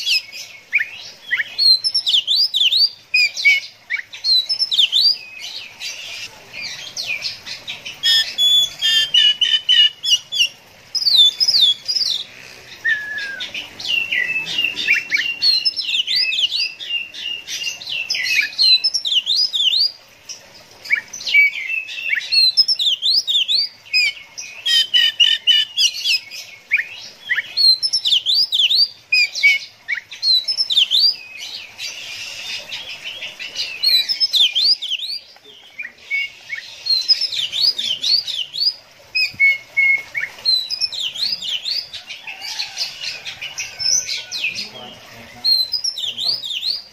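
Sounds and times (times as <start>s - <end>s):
bird singing whistles and trills: 0.0s - 5.4s, 12.8s - 20.0s, 20.9s - 33.1s, 33.7s - 41.8s, 45.3s - 46.9s.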